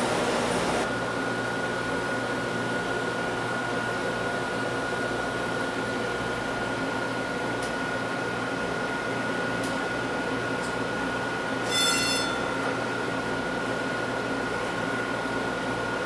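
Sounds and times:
equipment hum and hiss: 0.0s - 16.0s
thin high whine: 11.6s - 12.6s.

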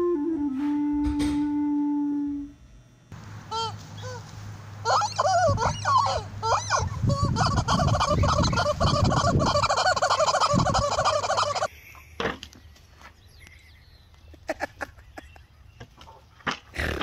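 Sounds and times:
rubber chicken toy squawking: 4.8s - 11.7s.

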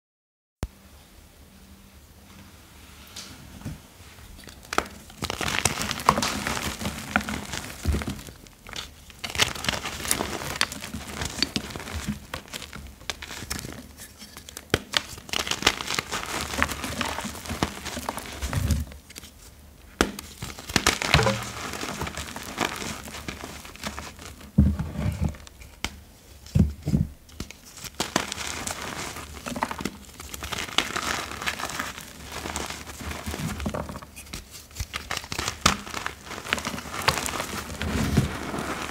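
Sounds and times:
powdery chalk squeaks and rustles: 5.2s - 19.4s, 20.4s - 25.5s, 27.4s - 38.9s.

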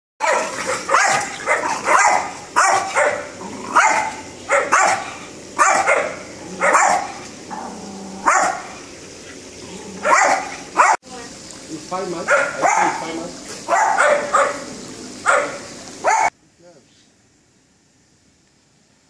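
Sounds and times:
dog barking sharply: 0.2s - 7.2s, 8.2s - 8.7s, 10.0s - 11.0s, 12.3s - 13.0s, 13.7s - 14.6s, 15.3s - 16.3s.

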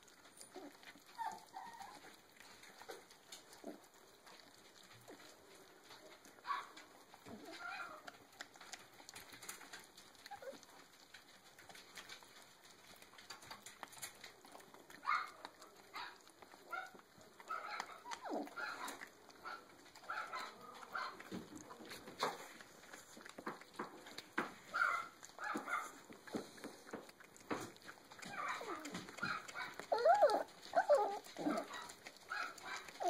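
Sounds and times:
puppies gnawing on bone: 0.0s - 33.0s
puppy squeaks: 28.3s - 31.7s.

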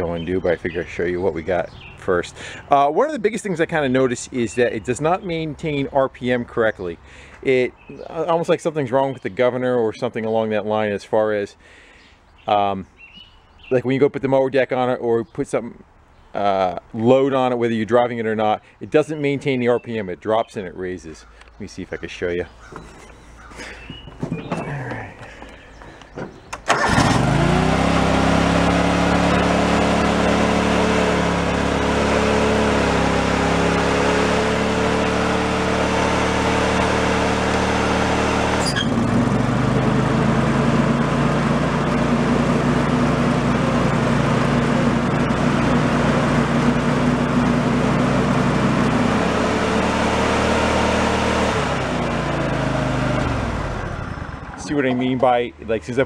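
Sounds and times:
lawn mower engine running: 22.6s - 55.0s.

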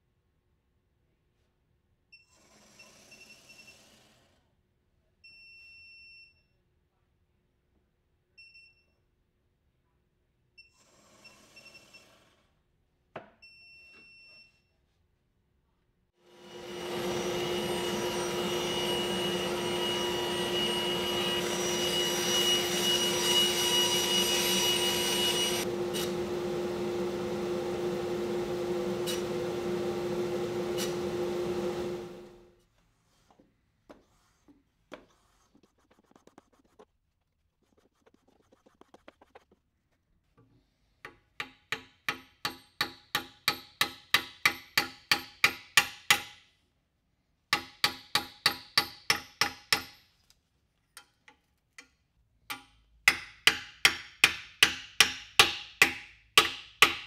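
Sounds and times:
bandsaw cutting wood: 16.3s - 32.3s.

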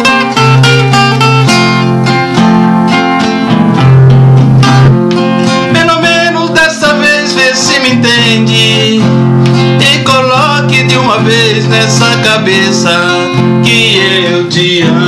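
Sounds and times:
acoustic guitars strumming: 0.0s - 15.0s
person singing: 5.4s - 15.0s.

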